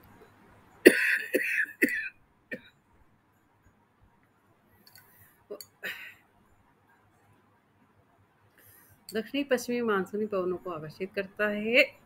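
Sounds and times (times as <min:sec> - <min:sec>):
woman coughing: 0:00.8 - 0:02.7, 0:05.8 - 0:06.2.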